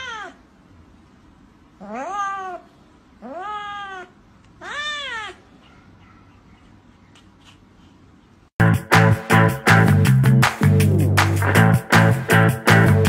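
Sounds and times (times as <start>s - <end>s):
cat meowing: 0.0s - 0.4s, 1.8s - 5.5s.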